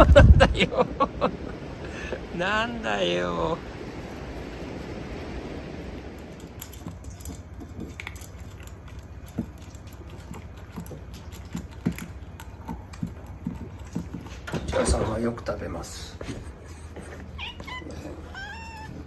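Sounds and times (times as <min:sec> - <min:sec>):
wind noise on microphone: 0:00.0 - 0:07.3
cats crunching dry food: 0:06.2 - 0:15.6.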